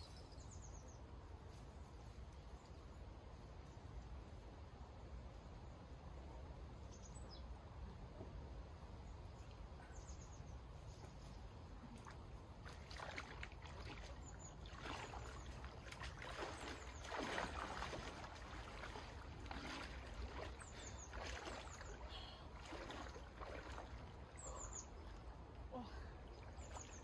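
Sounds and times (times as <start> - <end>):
people wading through water: 11.8 - 27.0
faint bird chirps: 24.3 - 27.0.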